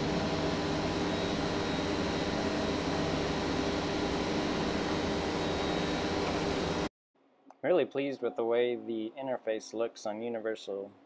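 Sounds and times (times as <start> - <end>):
spindle motor whirring: 0.0 - 6.9
stepper motors humming: 0.0 - 6.9.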